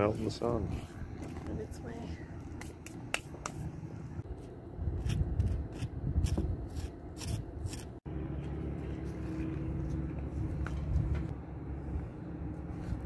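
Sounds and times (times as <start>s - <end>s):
butter knife scraping: 4.9s - 8.0s
low rumble: 8.0s - 13.0s.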